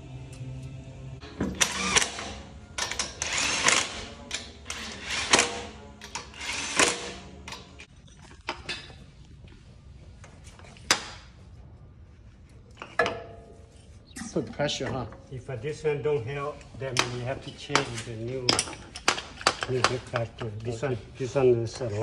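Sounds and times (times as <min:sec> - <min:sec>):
cordless power tool bursts: 0:01.5 - 0:02.4, 0:03.1 - 0:04.1, 0:06.3 - 0:07.2.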